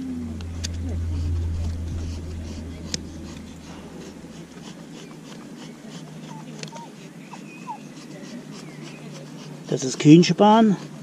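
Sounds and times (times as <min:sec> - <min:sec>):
knife shaving wood: 0:04.4 - 0:11.0.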